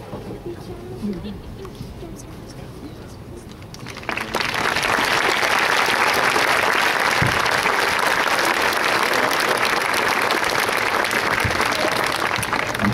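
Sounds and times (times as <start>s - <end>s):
large crowd applauding: 3.7s - 12.9s.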